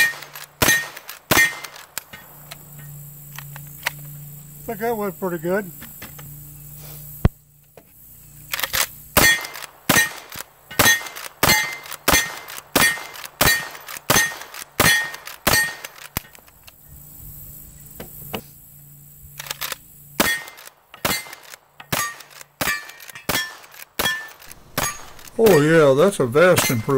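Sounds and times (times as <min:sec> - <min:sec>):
rifle shots: 0:00.0 - 0:02.6, 0:08.6 - 0:16.2, 0:19.4 - 0:26.9.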